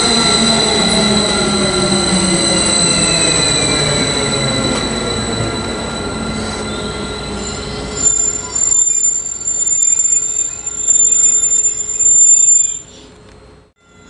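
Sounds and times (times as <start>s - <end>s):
train brakes squealing: 0.0s - 13.2s, 13.8s - 14.0s
train running noise: 0.0s - 14.0s.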